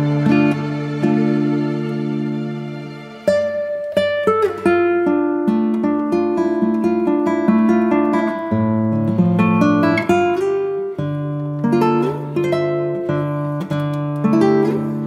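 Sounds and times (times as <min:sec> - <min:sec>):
plucked melody: 0:00.0 - 0:15.0.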